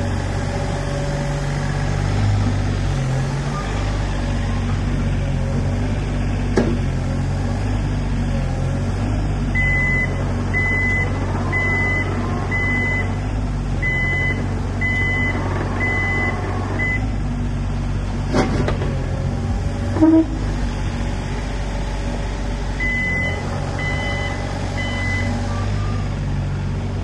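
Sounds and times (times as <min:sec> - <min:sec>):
excavator diesel engine running: 0:00.0 - 0:27.0
warning alarm beeping: 0:09.6 - 0:13.2, 0:22.8 - 0:26.0.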